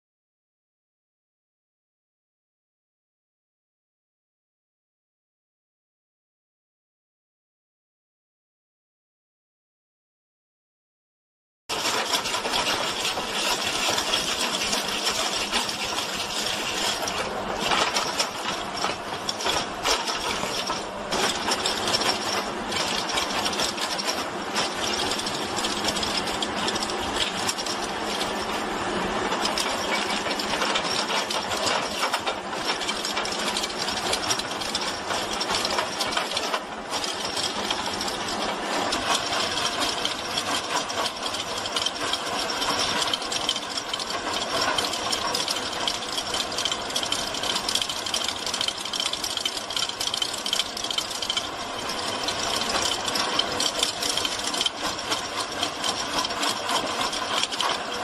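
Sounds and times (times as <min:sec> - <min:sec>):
mulcher grinding through wood: 0:11.7 - 0:58.0.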